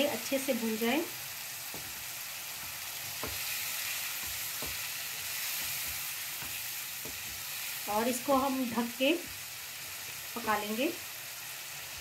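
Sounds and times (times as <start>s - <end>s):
masala sizzling in oil: 0.0s - 12.0s
spatula knocking on pan: 1.7s - 7.5s.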